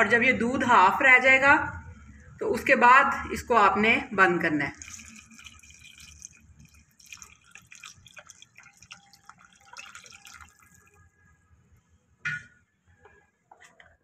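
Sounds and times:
milk pouring and splashing: 4.7 - 11.1.

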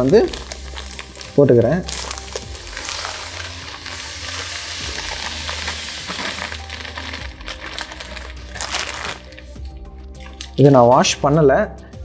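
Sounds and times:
sand pouring into glass tank: 0.0 - 9.3
plastic bag rustling: 0.0 - 10.7.

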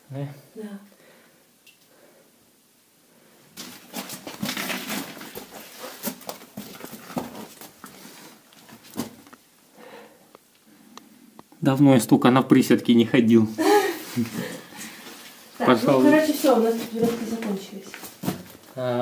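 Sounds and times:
scrapes and knocks on rock: 3.6 - 7.8
clothing rustle: 3.6 - 9.3, 13.9 - 18.8
scuffing footsteps: 3.6 - 9.3, 15.9 - 18.7.

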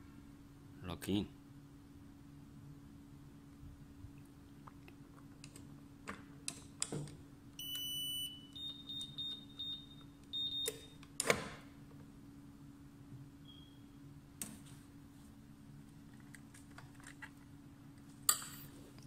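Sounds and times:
long high beep: 7.6 - 10.8
short keypad beeps: 7.6 - 11.0.

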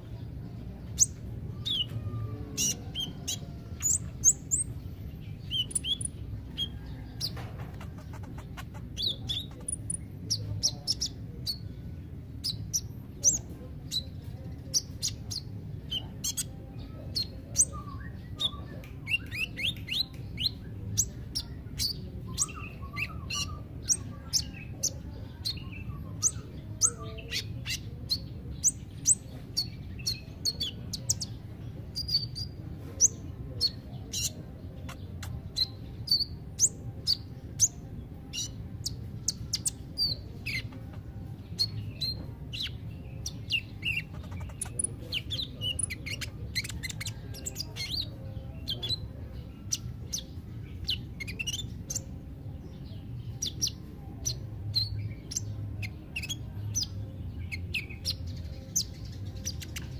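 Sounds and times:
bird chirping and twittering: 0.0 - 59.9.

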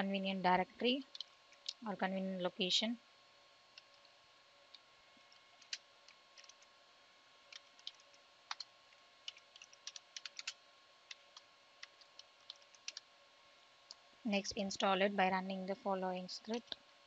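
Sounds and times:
faint steady hum: 0.0 - 17.0
keyboard typing: 5.6 - 5.8, 6.4 - 6.7, 7.5 - 13.1.

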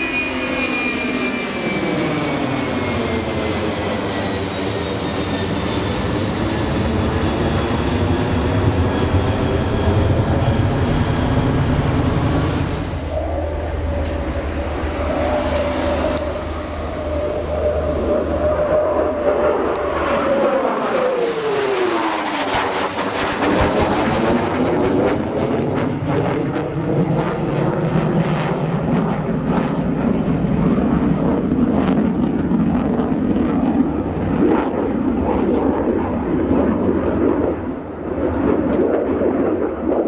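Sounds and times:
jet engines passing over: 0.0 - 40.0
jet crackling: 7.5 - 25.0.

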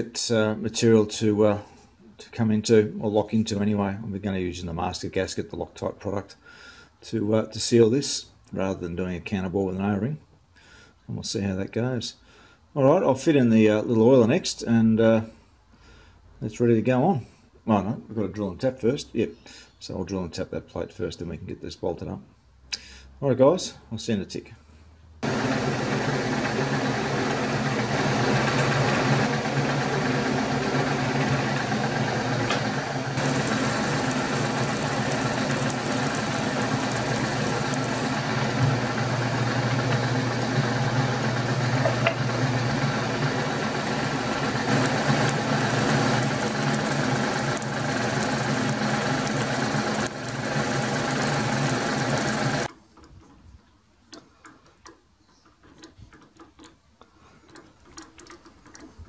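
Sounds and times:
machine switching off: 25.2 - 52.7
milling machine running: 25.2 - 52.7
drill bit cutting metal: 25.3 - 52.7.

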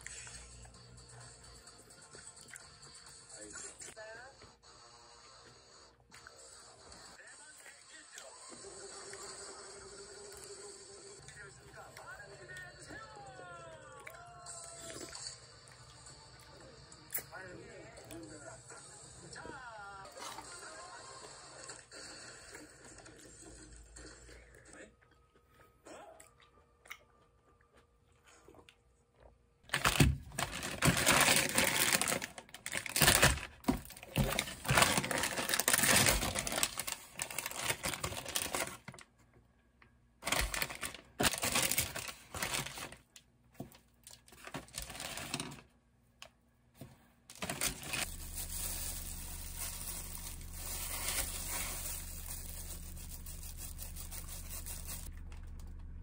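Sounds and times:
plastic packaging crinkling and tearing: 29.7 - 39.1, 40.2 - 43.2, 44.0 - 45.7, 47.3 - 55.7.

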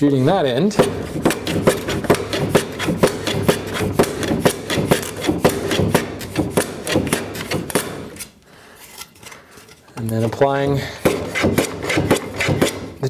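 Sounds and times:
hand plane shaving wood: 0.8 - 8.3, 10.1 - 13.0.

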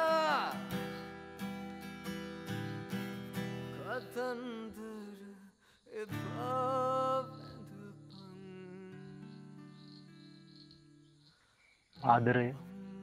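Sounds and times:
man singing: 0.0 - 1.0, 3.7 - 9.7, 12.4 - 13.0
acoustic guitar: 0.0 - 13.0.

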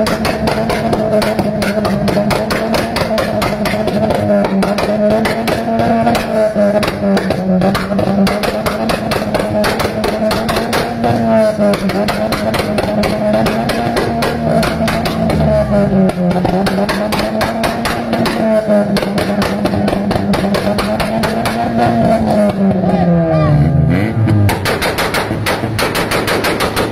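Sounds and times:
exhaust backfire pops and crackles: 0.0 - 23.2, 24.0 - 26.9
car engine at high revs: 0.0 - 26.9.

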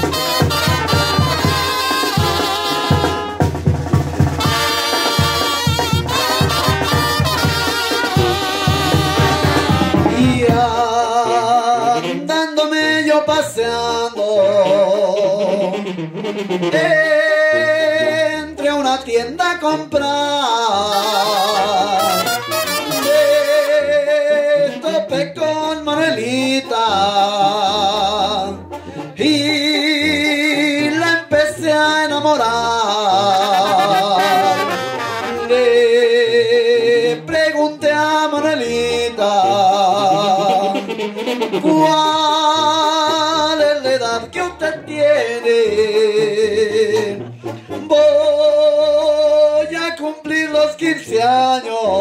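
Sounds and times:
drums: 0.0 - 11.2, 27.0 - 32.5
sousaphone bass line: 0.0 - 12.4, 13.1 - 49.4
trumpets and clarinets melody: 0.0 - 48.9.

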